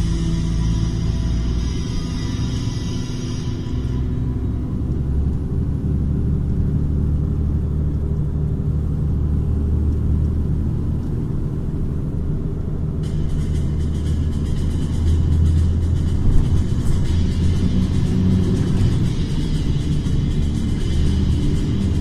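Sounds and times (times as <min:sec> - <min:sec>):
car engine and tyres rumbling: 0:00.0 - 0:22.0.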